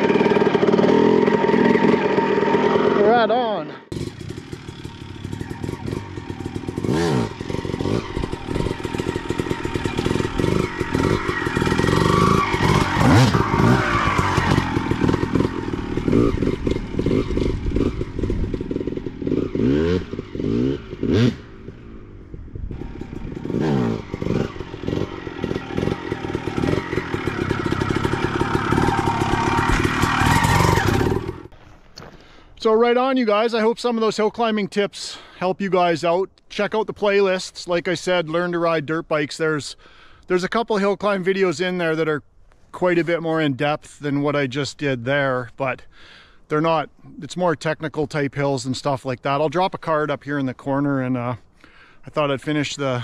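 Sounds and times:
dirt bike engine revving: 0:00.0 - 0:31.5.

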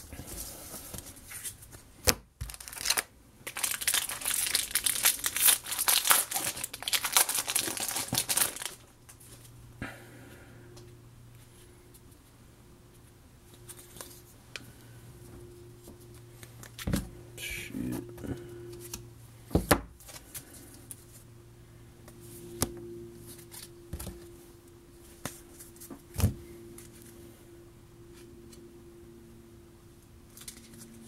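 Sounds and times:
low steady hum: 0:00.0 - 0:31.0
cards rustling: 0:02.4 - 0:08.8.

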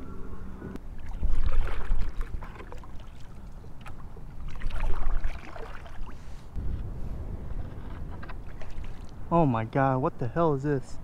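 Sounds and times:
paddle splashing in water: 0:00.9 - 0:06.4, 0:08.2 - 0:09.1.

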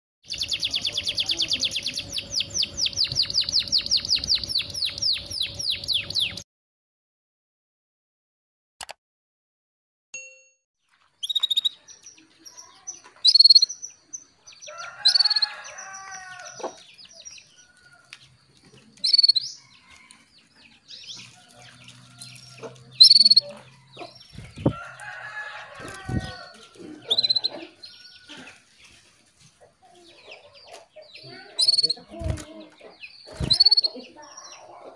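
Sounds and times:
canary chirps: 0:00.2 - 0:06.4, 0:11.2 - 0:18.2, 0:18.9 - 0:29.0, 0:29.9 - 0:34.9
soft bird twittering: 0:00.3 - 0:06.4, 0:11.2 - 0:18.0, 0:18.8 - 0:20.2, 0:22.1 - 0:28.9, 0:30.6 - 0:34.8.

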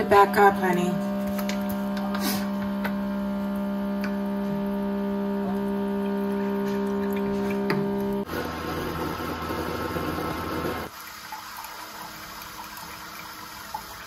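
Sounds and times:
electrical hum: 0:00.0 - 0:10.9.

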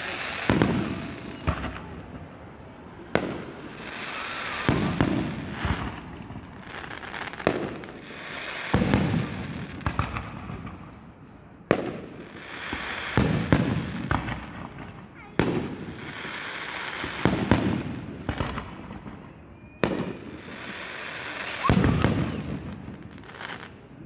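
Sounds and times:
firework shells bursting: 0:00.0 - 0:12.0.

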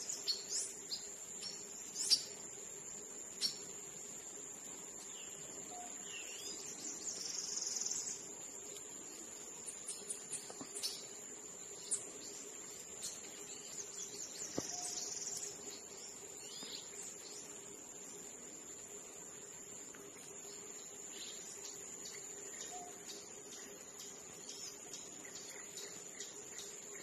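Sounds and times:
high-pitched insect trill: 0:00.0 - 0:27.0
pulsing insect buzzes: 0:00.0 - 0:27.0
bird chirps and clicks: 0:21.5 - 0:26.8.

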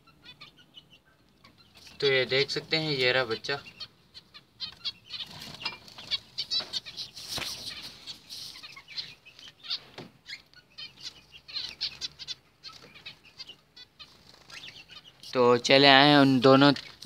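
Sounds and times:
finches calling: 0:00.0 - 0:17.0
wings fluttering: 0:05.1 - 0:08.9, 0:14.0 - 0:15.0.

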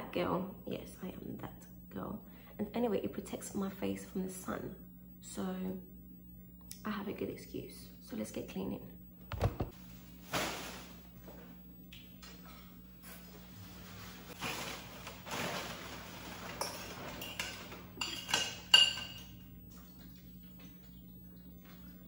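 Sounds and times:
things knocking: 0:09.2 - 0:09.8
plastic bag rustling: 0:09.4 - 0:11.4, 0:13.2 - 0:17.8
crockery clinking: 0:16.6 - 0:19.5.

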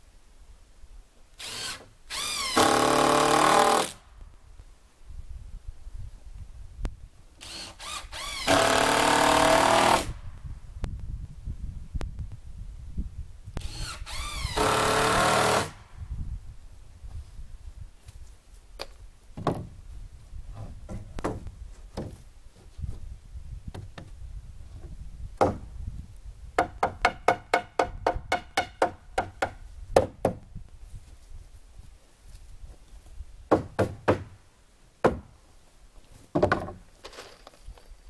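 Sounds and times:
cordless drill motor: 0:01.4 - 0:03.8, 0:07.4 - 0:10.0, 0:13.6 - 0:15.7.

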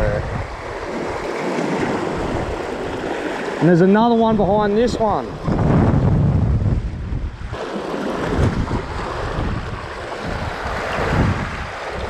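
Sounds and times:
waves surging against rocks: 0:00.0 - 0:05.9, 0:07.0 - 0:12.0
wind buffeting microphone: 0:00.0 - 0:12.0.

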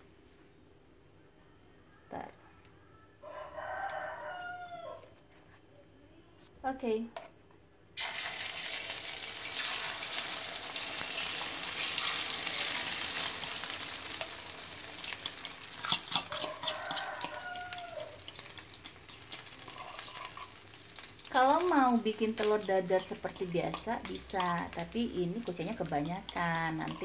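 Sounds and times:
batter sizzling in hot oil: 0:08.0 - 0:27.0.

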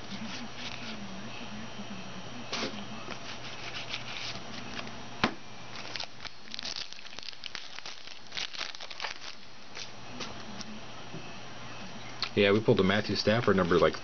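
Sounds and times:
foil wrapper tearing and crinkling: 0:05.7 - 0:09.9.

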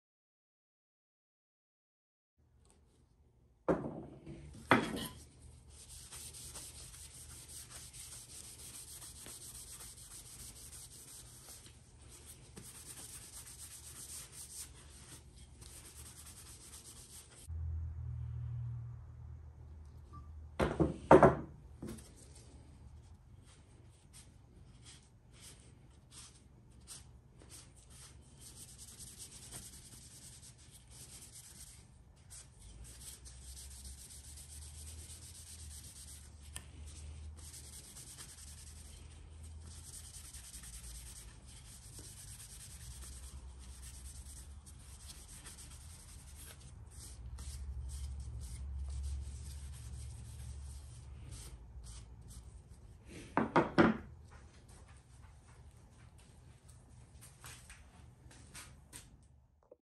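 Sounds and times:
hand rubbing strokes: 0:05.6 - 0:17.5, 0:22.0 - 0:53.3
low hum: 0:17.5 - 0:20.5.

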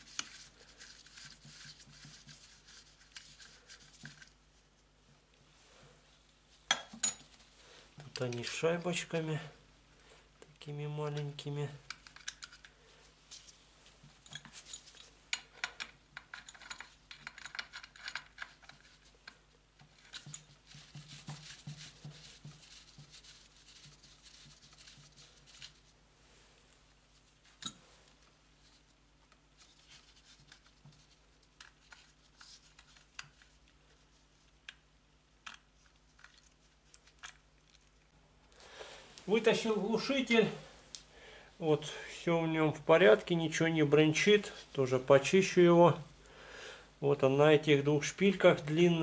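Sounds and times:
small wrench clicking and scraping: 0:14.3 - 0:19.4.

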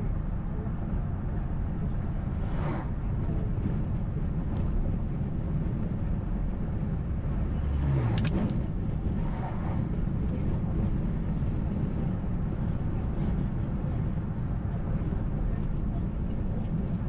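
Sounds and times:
car road and engine rumble: 0:00.0 - 0:17.0
truck passing by: 0:02.1 - 0:03.2.

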